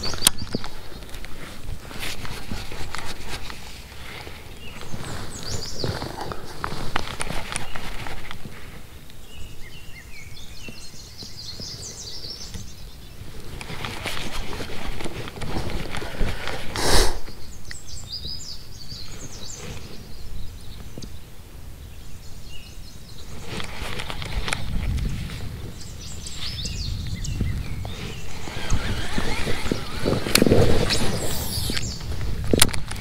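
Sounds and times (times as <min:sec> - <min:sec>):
birds chirping: 0:00.0 - 0:33.0
fishing reel handling noise: 0:28.3 - 0:32.0.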